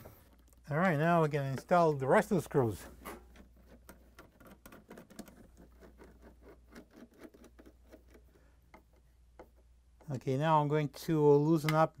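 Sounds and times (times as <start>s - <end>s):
screws clicking and scratching: 3.4s - 9.1s.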